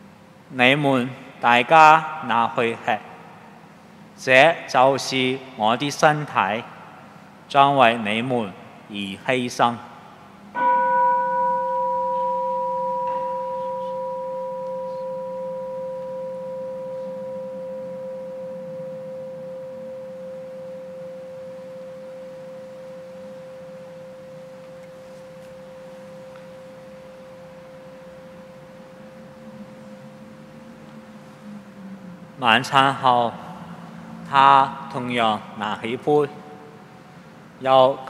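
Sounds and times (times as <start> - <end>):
bell struck and ringing: 10.6 - 31.0.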